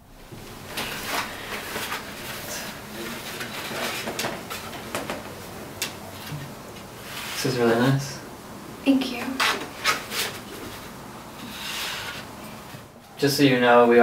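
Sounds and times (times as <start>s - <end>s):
paper sheets rustling: 0.5s - 7.9s, 9.3s - 12.3s.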